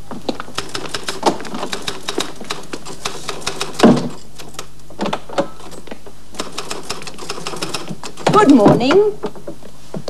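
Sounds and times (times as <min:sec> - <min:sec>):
typewriter keys clacking: 0:00.5 - 0:04.8, 0:05.4 - 0:08.6.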